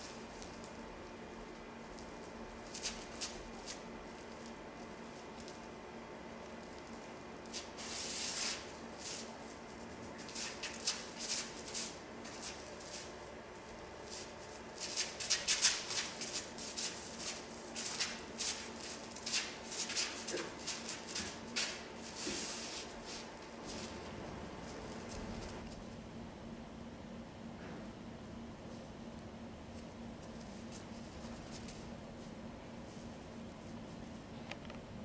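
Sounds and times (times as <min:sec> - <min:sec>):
bare feet shuffling on stage floor: 0:06.4 - 0:25.9, 0:29.7 - 0:34.1.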